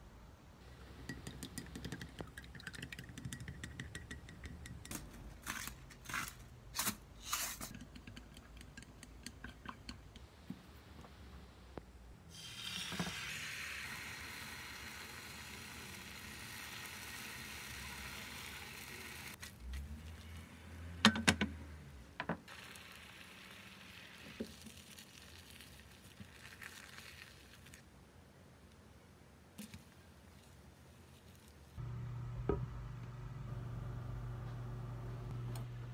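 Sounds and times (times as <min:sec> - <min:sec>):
egg sizzling in a pan: 0:12.3 - 0:19.4, 0:22.5 - 0:27.8.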